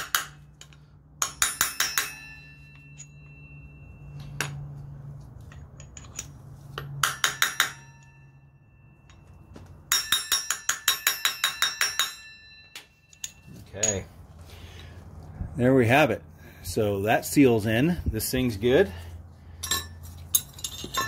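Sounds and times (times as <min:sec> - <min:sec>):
hammer tapping metal: 0:00.0 - 0:04.8, 0:05.5 - 0:14.1.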